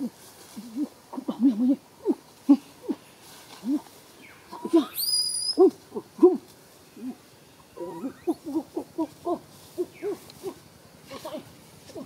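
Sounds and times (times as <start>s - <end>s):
hooting calls: 7.0s - 11.5s.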